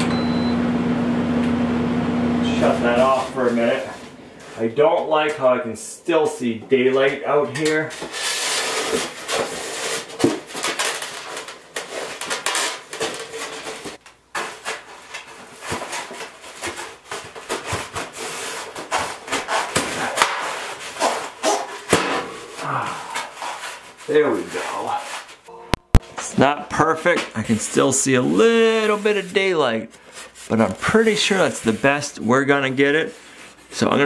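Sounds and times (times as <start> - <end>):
foam board rubbing and scraping: 7.9 - 10.6, 11.8 - 21.7, 22.4 - 25.4.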